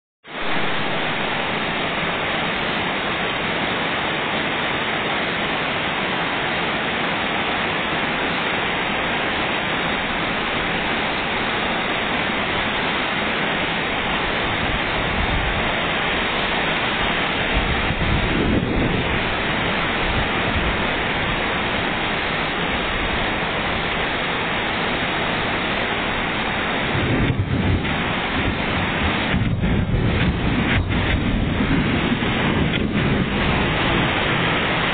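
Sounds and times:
heavy rain hissing: 0.2 - 34.9
low rumbles: 13.6 - 34.9.

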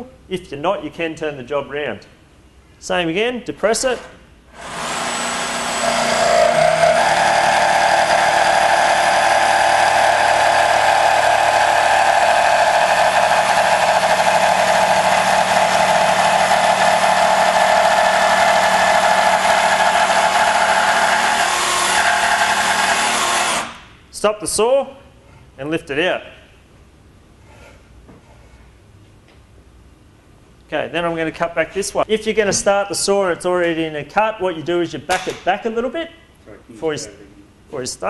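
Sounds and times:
jigsaw cutting plywood: 4.6 - 23.8.

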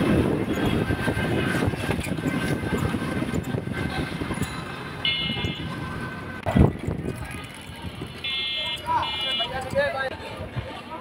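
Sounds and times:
wind buffeting microphone: 0.0 - 8.3.

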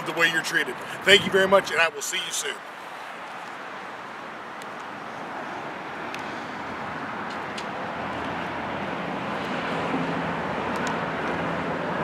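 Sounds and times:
road traffic noise: 0.0 - 12.0
passing vehicle engine hum: 2.7 - 12.0.

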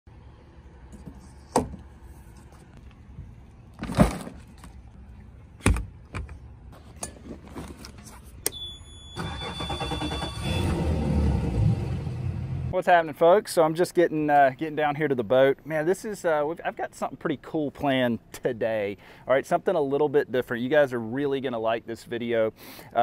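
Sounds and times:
high warning beep: 8.5 - 10.8
outboard engine starting: 9.2 - 12.0.

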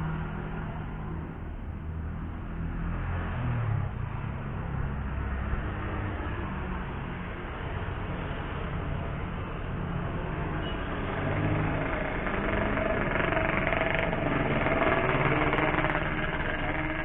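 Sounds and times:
vehicle engine running: 10.0 - 17.0.

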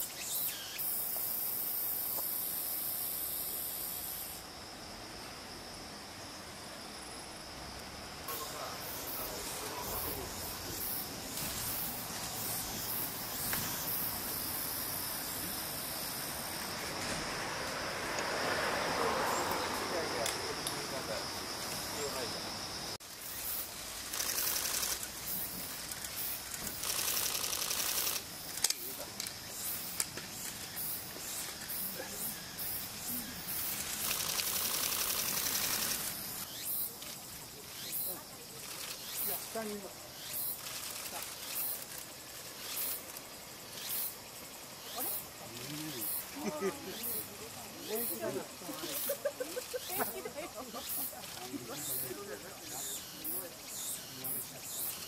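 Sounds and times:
background hiss: 0.0 - 55.0
insects chirring: 0.0 - 55.0.

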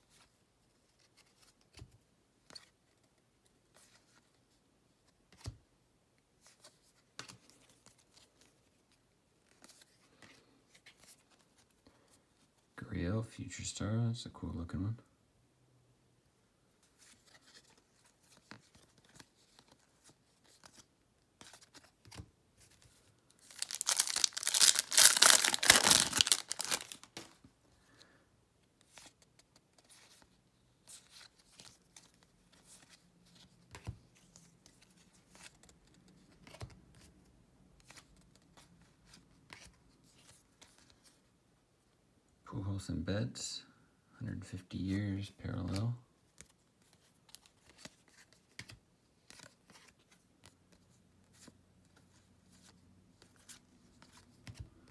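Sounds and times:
cards being flipped through: 5.3 - 5.6, 6.4 - 8.6, 16.8 - 27.5, 28.8 - 37.1, 45.6 - 54.8
wrapper tearing and crinkling: 23.4 - 27.3.

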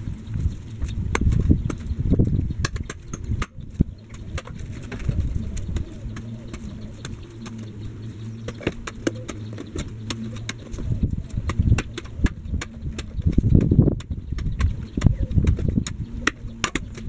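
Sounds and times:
pigeon cooing: 3.0 - 13.2, 14.8 - 17.0.

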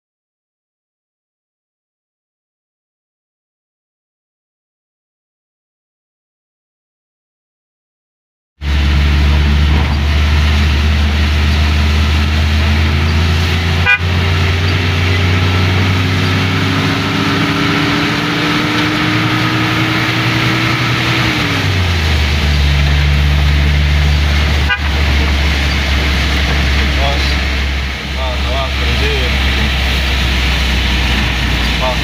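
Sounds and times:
low engine drone: 8.6 - 32.0
rain and wet tyres hissing: 8.6 - 32.0.

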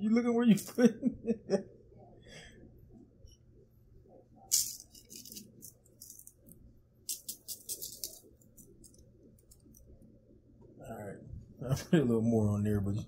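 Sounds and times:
spice shaker rattling: 4.5 - 9.9.

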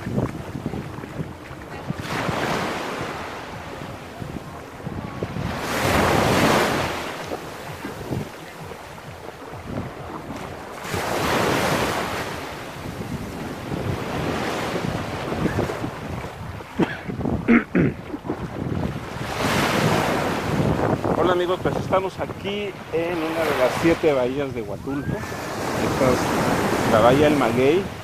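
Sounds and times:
small waves breaking on shore: 0.0 - 28.0
wind buffeting microphone: 0.0 - 28.0.

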